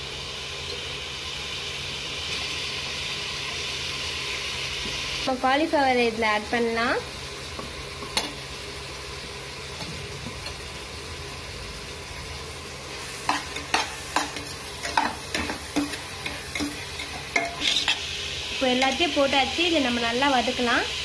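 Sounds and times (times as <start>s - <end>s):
vegetables sizzling in oil: 0.0s - 21.0s
steel spoon scraping pot: 13.3s - 18.0s.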